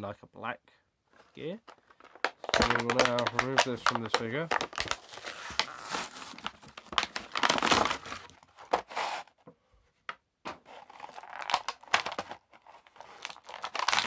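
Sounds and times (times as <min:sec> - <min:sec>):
plastic tray crinkling: 0:01.6 - 0:09.0, 0:10.5 - 0:14.0
cardboard packaging tearing: 0:02.4 - 0:09.3, 0:10.6 - 0:14.0.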